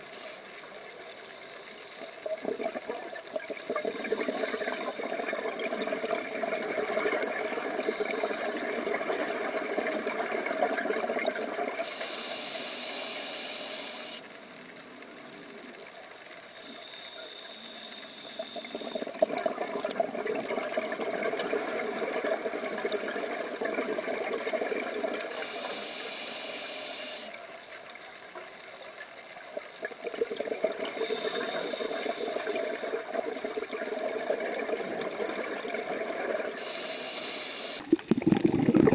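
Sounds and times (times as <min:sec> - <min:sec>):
sharp hiss of inhaling: 0:00.0 - 0:00.5, 0:01.2 - 0:02.2, 0:11.8 - 0:14.3, 0:17.2 - 0:18.8, 0:21.6 - 0:22.4, 0:24.8 - 0:27.4, 0:28.0 - 0:29.0, 0:36.6 - 0:37.8.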